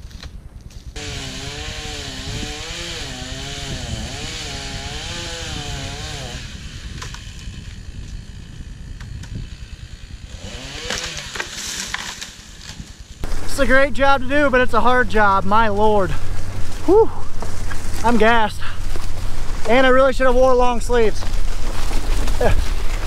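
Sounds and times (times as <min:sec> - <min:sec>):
chainsaw cutting into tree: 0:01.0 - 0:13.4.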